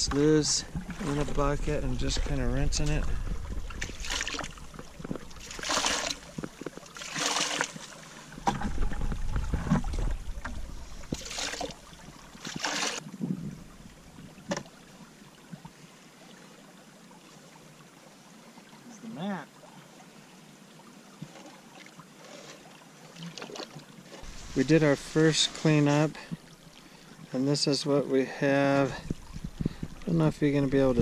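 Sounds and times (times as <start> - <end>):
water splashing into bucket: 0.0 - 13.0
water trickling: 0.0 - 31.0.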